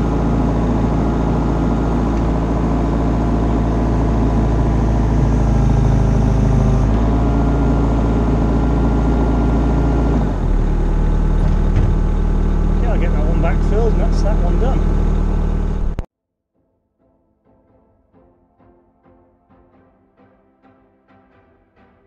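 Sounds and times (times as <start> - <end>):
machine engine running: 0.0 - 16.1.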